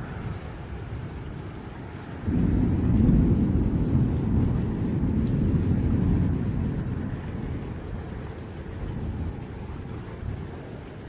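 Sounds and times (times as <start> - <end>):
thunder rumbling: 2.2 - 11.0.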